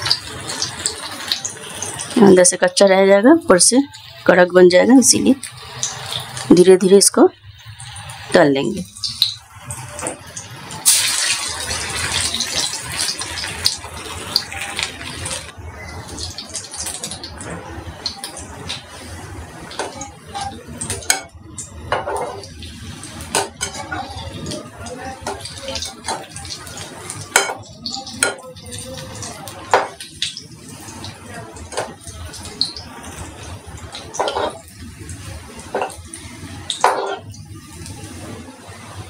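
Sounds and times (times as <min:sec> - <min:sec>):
oil sizzling: 0:00.0 - 0:39.0
spoon clinking and scraping pan: 0:34.2 - 0:34.6, 0:36.8 - 0:37.3.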